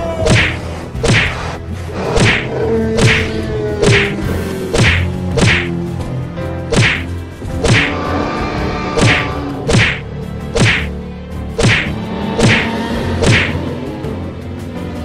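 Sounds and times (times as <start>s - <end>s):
background music: 0.0s - 15.0s
cartoon hit whacks: 0.2s - 1.4s, 2.2s - 4.1s, 4.7s - 5.7s, 6.7s - 7.9s, 9.0s - 10.9s, 11.6s - 13.6s.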